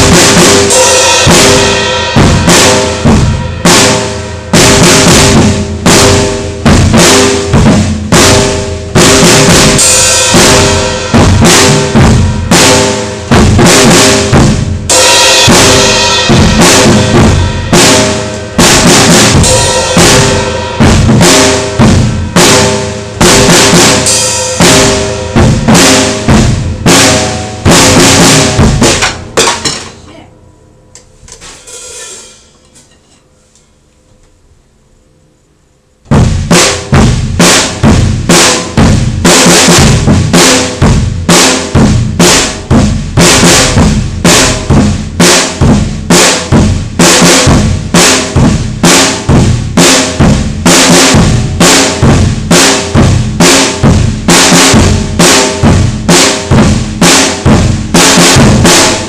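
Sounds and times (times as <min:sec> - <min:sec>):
drum kit playing loudly: 0:00.0 - 0:32.9, 0:36.0 - 0:59.0
cymbals ringing: 0:08.2 - 0:33.5.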